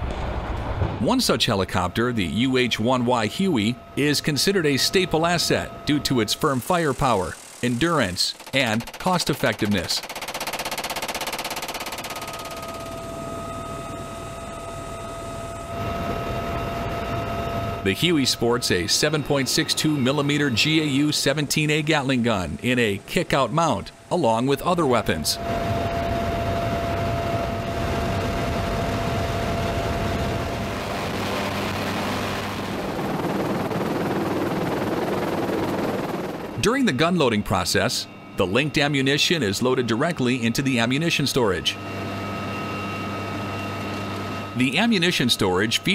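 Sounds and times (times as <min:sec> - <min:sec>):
helicopter rotor and turbine: 0:00.0 - 0:45.9
steady high whine: 0:00.0 - 0:45.9
machine gun firing: 0:07.6 - 0:12.8.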